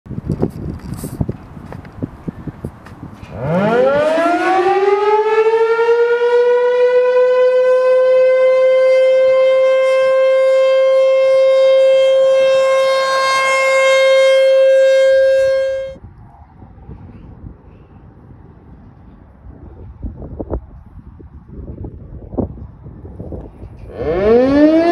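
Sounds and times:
warning siren steady tone: 3.2 - 16.0, 23.7 - 24.9.

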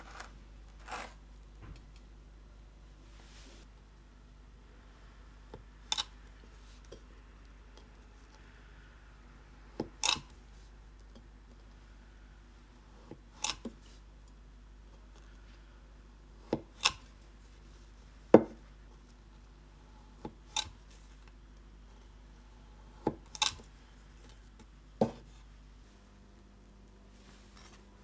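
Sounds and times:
knife cutting dough on board: 25.0 - 25.4.

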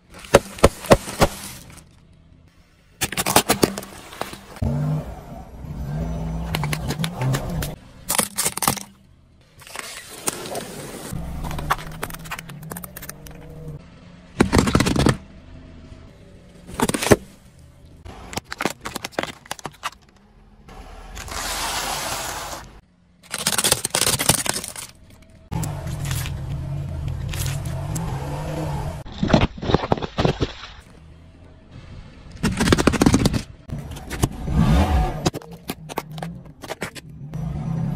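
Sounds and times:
tyre crushing objects: 0.0 - 1.9, 14.4 - 15.2, 16.7 - 17.4, 29.0 - 30.9, 32.4 - 34.4
car engine running low: 11.0 - 18.4.

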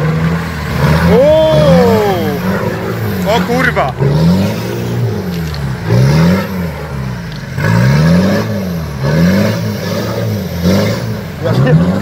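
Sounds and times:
off-road vehicle engine revving hard: 0.0 - 12.0.

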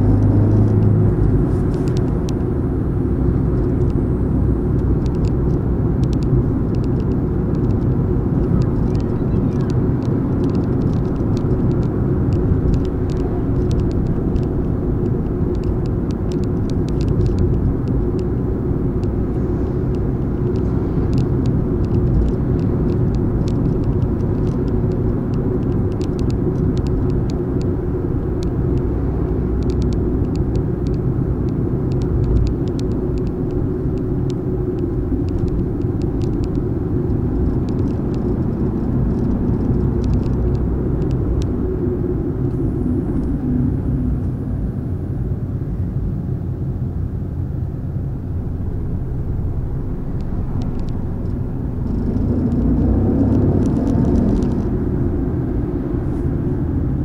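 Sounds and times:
car engine cruising: 0.0 - 57.0
road and tyre noise: 0.0 - 57.0
small clicks: 4.8 - 18.4, 19.9 - 27.8, 28.4 - 43.5, 50.0 - 56.4.

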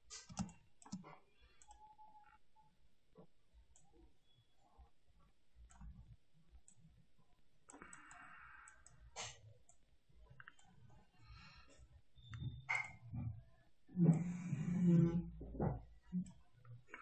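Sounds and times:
computer mouse clicks: 0.1 - 2.4, 7.7 - 9.8, 10.4 - 10.8.

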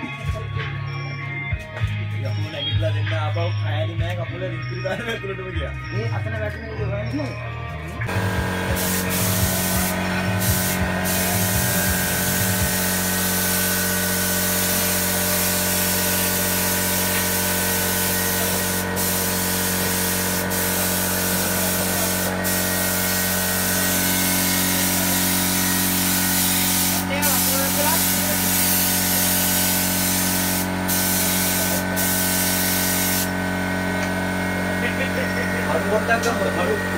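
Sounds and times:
paint spray gun hissing: 8.1 - 35.3.

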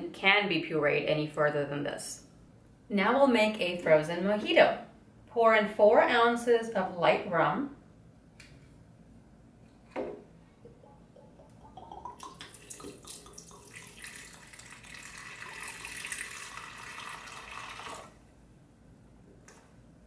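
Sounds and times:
liquid pouring into plastic jar: 10.7 - 18.2.

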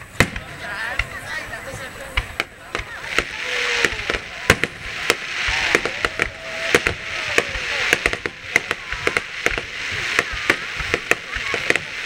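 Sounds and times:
fireworks bursting with sharp bangs: 0.0 - 12.0
fireworks hiss: 0.0 - 12.0.

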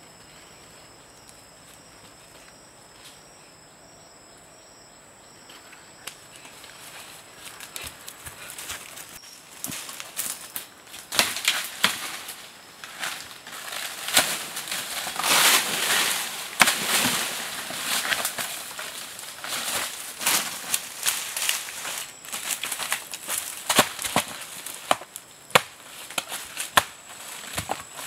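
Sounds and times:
leaves and brush rustling: 5.2 - 28.0
twigs snapping: 7.4 - 27.9.

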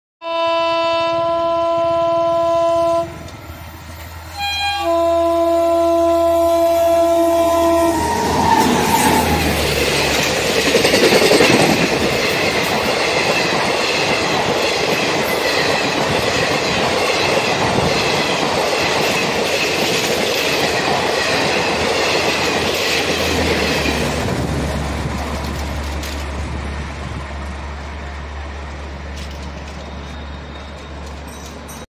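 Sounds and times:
locomotive horn: 0.2 - 3.2, 4.3 - 9.7
train wheels clattering on rails: 8.0 - 31.9.

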